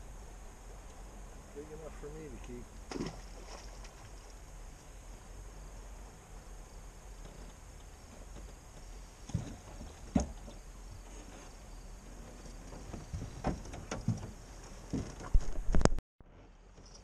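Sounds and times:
gear knocking in boat: 0:12.4 - 0:15.5.

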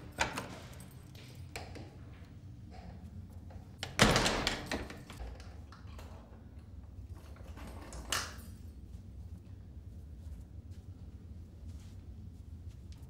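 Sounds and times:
toilet cubicle door slamming: 0:03.8 - 0:05.2.

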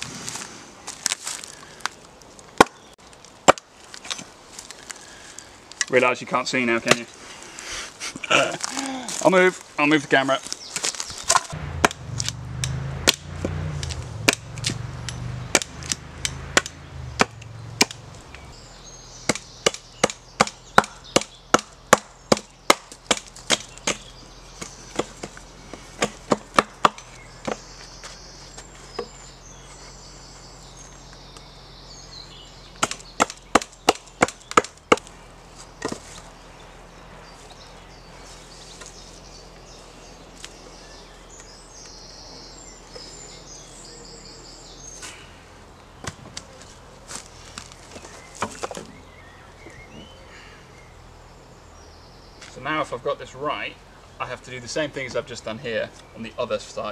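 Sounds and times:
axe chopping wood: 0:02.6 - 0:02.8, 0:03.4 - 0:04.2, 0:11.3 - 0:18.0, 0:19.3 - 0:25.4, 0:26.0 - 0:27.7, 0:32.8 - 0:35.1.

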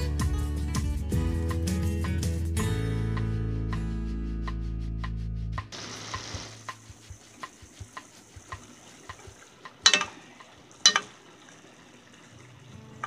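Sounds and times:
background music: 0:00.0 - 0:05.8
light sizzle: 0:05.7 - 0:13.0.

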